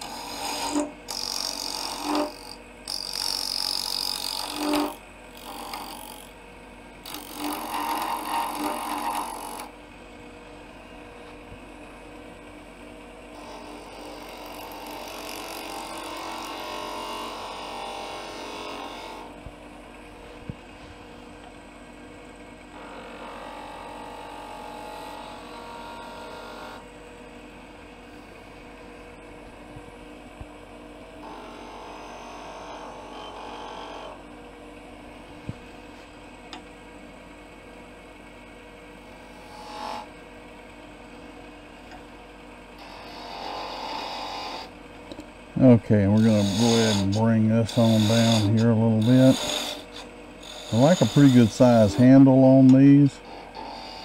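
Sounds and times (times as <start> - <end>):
chisel cutting spinning wood: 0.0 - 9.8, 10.8 - 20.8, 22.7 - 26.9, 31.2 - 34.3, 42.8 - 44.8, 45.5 - 54.0
wood lathe humming: 0.0 - 26.9, 31.0 - 36.1, 38.9 - 54.0.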